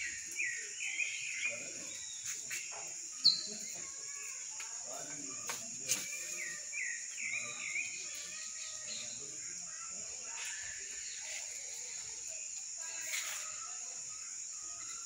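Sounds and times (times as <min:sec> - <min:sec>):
birds calling: 0:00.0 - 0:04.2
insects droning: 0:00.0 - 0:15.0.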